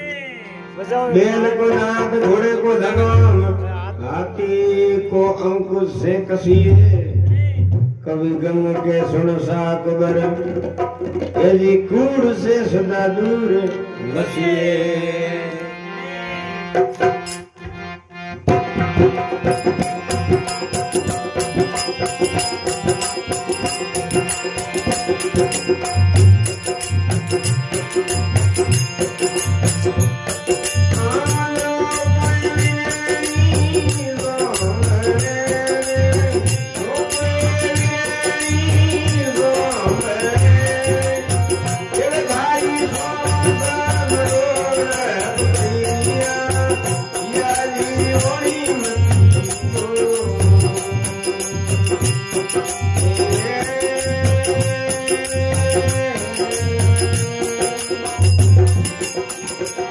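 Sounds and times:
harmonium melody: 0.0s - 7.3s, 7.9s - 59.9s
high jingling percussion: 16.8s - 17.8s, 18.4s - 59.9s.

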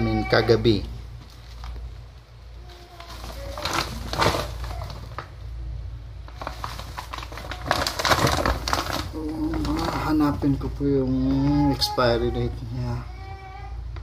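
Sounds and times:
plastic sack rustling and crinkling: 1.1s - 5.6s, 6.2s - 12.6s.

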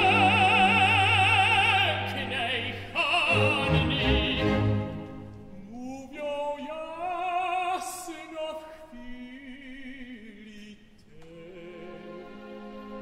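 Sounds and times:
soft orchestral accompaniment: 0.0s - 7.8s, 11.3s - 13.0s
operatic tenor singing: 0.0s - 13.0s.

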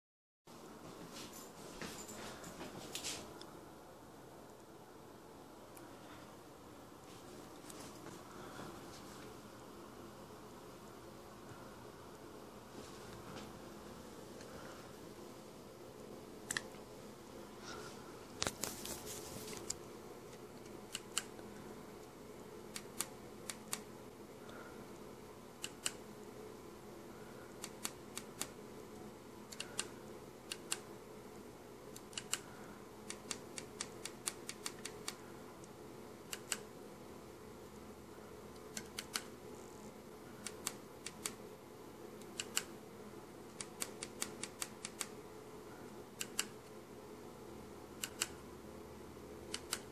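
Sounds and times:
handling rustle: 18.4s - 19.8s.

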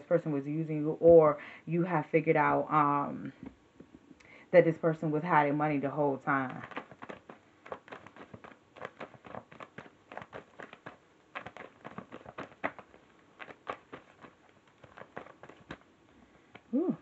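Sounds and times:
cards clicking and flicking: 6.5s - 15.8s.

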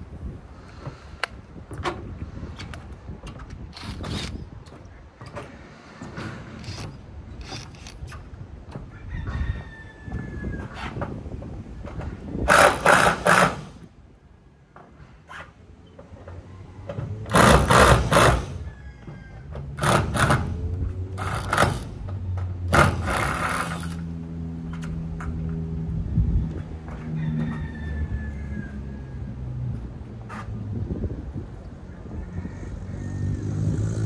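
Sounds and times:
power drill driving screws into metal: 12.5s - 13.8s, 17.3s - 18.6s.

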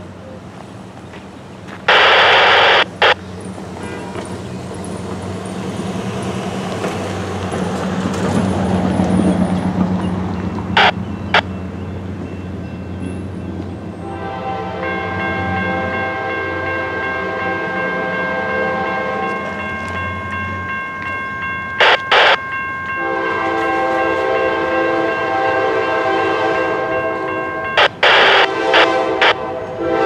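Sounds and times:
loud horn blasts: 1.9s - 3.2s, 3.8s - 4.3s, 14.0s - 19.5s, 23.0s - 30.0s
railroad crossing bell ringing: 10.0s - 30.0s.

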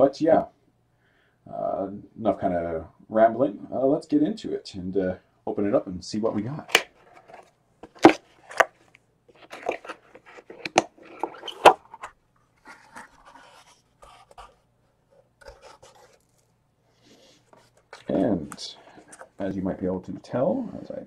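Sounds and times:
cardboard lid scraping: 6.7s - 14.6s
cardboard rustling: 6.7s - 20.1s.

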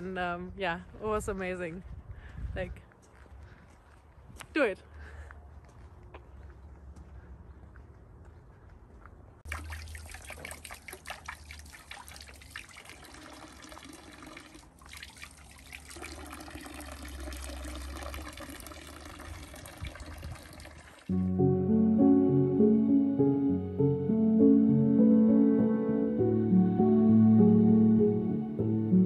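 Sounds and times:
water splashing over hands: 9.5s - 13.1s
water trickling into stone trough: 9.5s - 21.1s.

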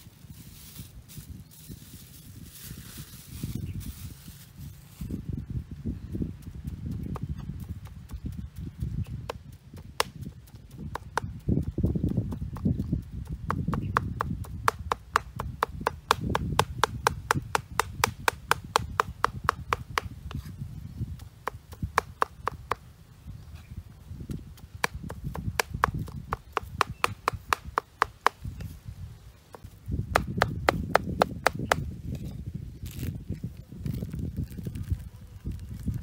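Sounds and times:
cleaver chopping on wooden board: 13.5s - 20.5s, 21.4s - 22.8s, 24.8s - 28.5s, 29.5s - 31.9s.

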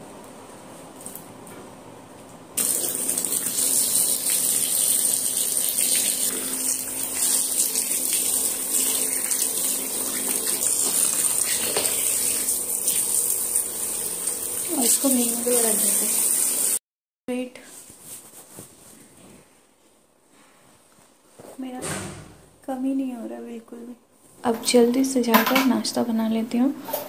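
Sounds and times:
water gushing into plastic tub: 2.6s - 16.8s.

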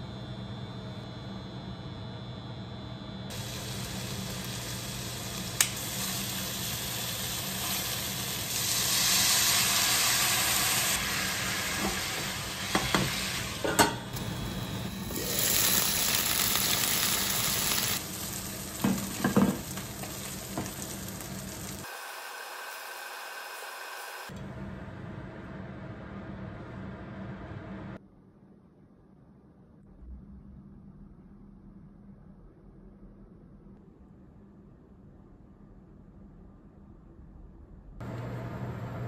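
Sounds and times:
food sizzling in a pan: 3.3s - 24.3s.

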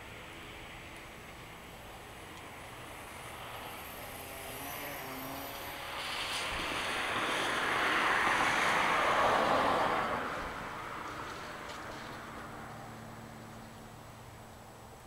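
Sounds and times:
car tyres hissing on wet road: 2.9s - 13.1s.

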